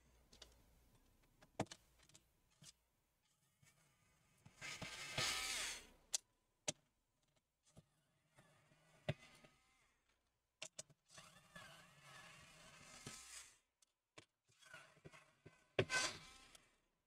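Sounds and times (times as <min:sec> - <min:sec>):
soft scraping of plastic frame: 0:11.1 - 0:13.6.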